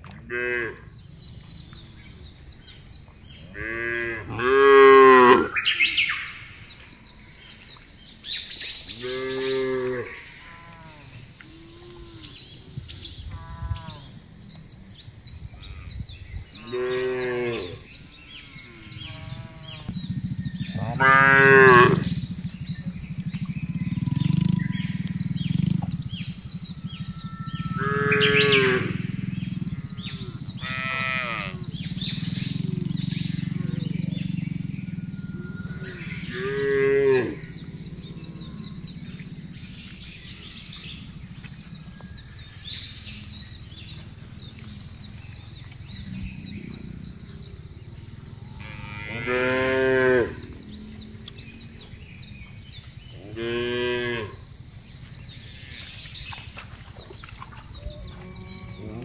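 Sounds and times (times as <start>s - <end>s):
cattle mooing: 3.5s - 5.6s, 8.9s - 12.4s, 16.6s - 19.9s, 20.6s - 22.2s, 24.0s - 39.5s, 48.5s - 51.8s, 53.2s - 54.4s, 58.0s - 59.0s.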